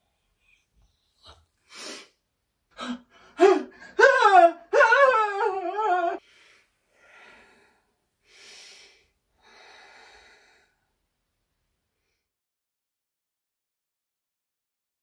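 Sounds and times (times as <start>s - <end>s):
man wailing: 3.4s - 6.2s
faint breaths: 6.2s - 10.9s.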